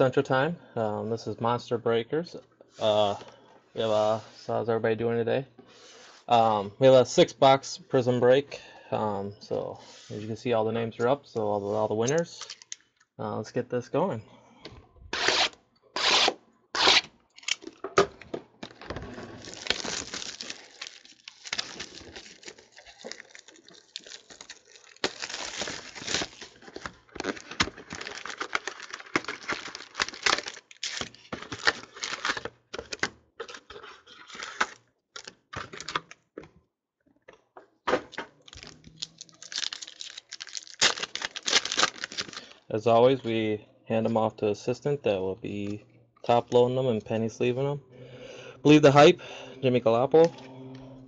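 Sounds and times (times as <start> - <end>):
foil packs ripping and crinkling: 18.6 - 35.9, 38.4 - 42.6.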